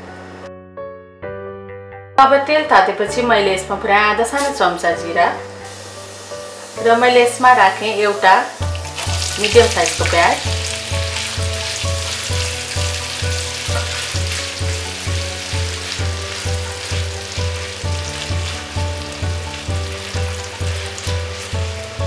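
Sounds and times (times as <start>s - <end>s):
onion sizzling in hot oil: 4.3s - 22.0s
spatula stirring in pan: 10.6s - 22.0s.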